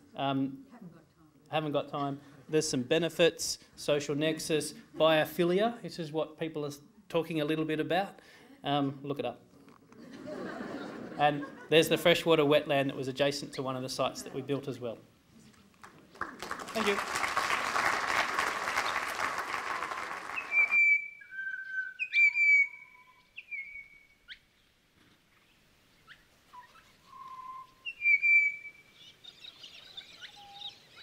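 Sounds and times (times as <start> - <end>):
audience applauding: 15.8 - 21.0
birdsong whistled notes: 20.3 - 24.5, 26.0 - 31.0
birds chattering: 28.9 - 31.0.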